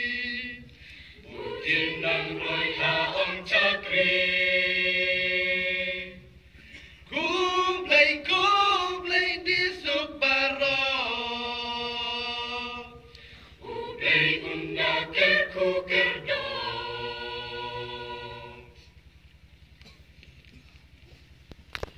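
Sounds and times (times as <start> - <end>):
choir singing held chords: 0.0 - 19.0
singers breathing: 0.7 - 1.3, 13.1 - 13.6.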